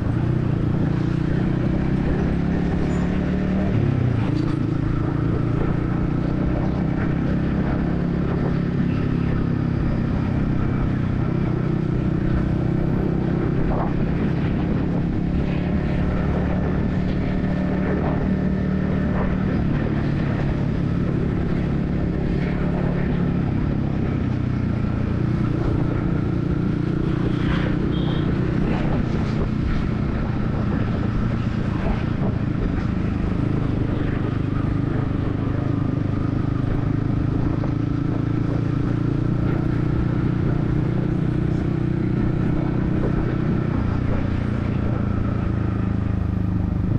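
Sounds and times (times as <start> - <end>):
motorcycle engine running: 0.0 - 46.9
traffic noise: 0.0 - 46.9.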